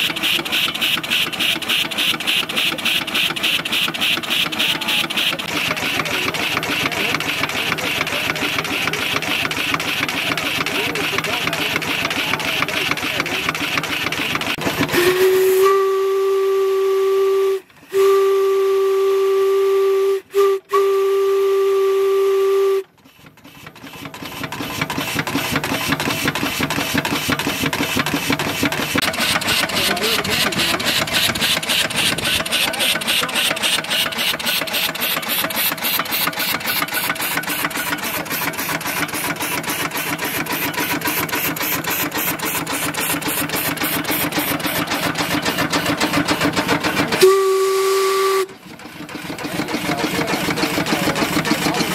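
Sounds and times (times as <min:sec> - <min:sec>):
steam engine exhaust beat: 0:00.0 - 0:51.9
steam whistle blast: 0:14.9 - 0:22.9, 0:47.2 - 0:48.6.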